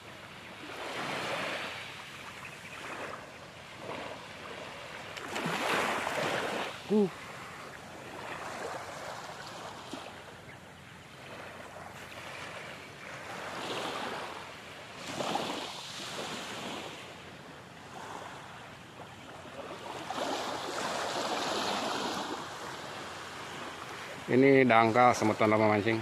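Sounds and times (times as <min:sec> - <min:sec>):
small waves lapping on beach: 0:00.0 - 0:26.0.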